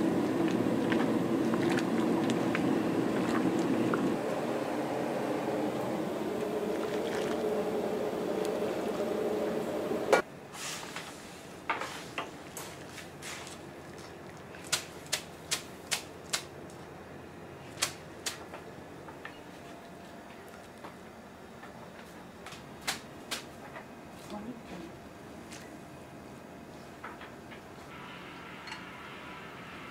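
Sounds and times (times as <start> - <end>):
gas range rushing: 0.0 - 10.2.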